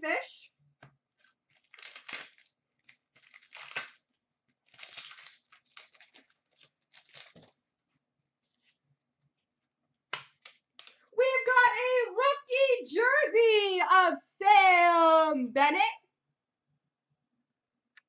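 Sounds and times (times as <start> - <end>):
wrapper tearing and crinkling: 1.2 - 7.6.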